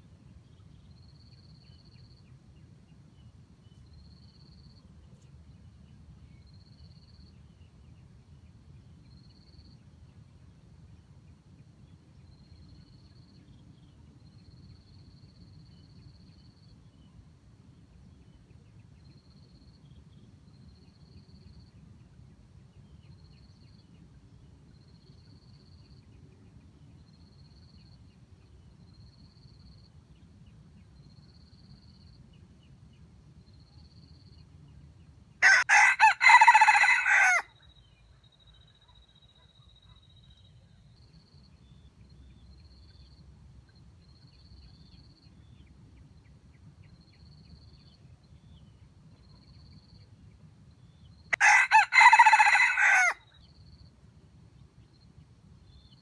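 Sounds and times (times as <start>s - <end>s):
faint insect chirps: 0.0s - 10.2s, 11.6s - 17.3s, 18.4s - 22.1s, 22.8s - 35.3s, 36.3s - 56.0s
rooster crowing: 35.4s - 37.5s, 51.3s - 53.2s.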